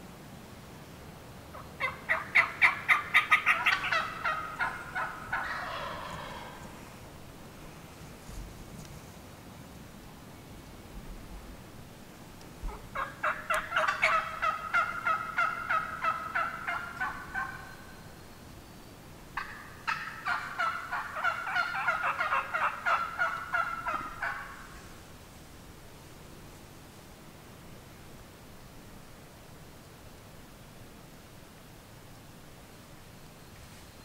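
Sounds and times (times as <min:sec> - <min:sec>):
turkey calling: 0:01.5 - 0:06.8, 0:12.6 - 0:18.2, 0:19.4 - 0:24.9.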